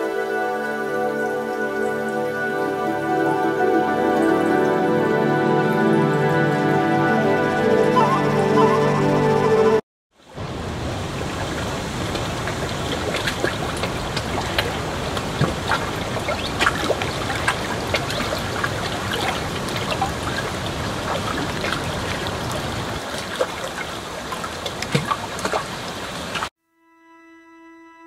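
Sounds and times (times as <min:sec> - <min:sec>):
background music: 0:00.0 - 0:09.8
river water rushing over rocks: 0:10.2 - 0:26.5
water splashing: 0:10.2 - 0:26.5.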